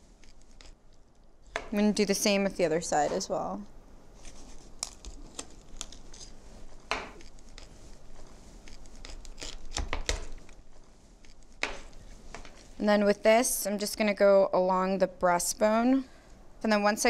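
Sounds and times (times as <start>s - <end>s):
knife crunching through bones: 8.7s - 9.9s.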